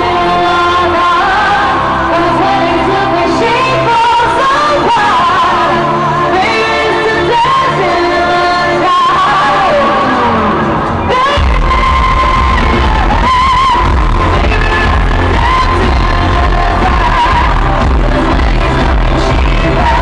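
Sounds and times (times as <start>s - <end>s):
woman singing: 0.0s - 20.0s
electronic dance backing: 9.1s - 20.0s.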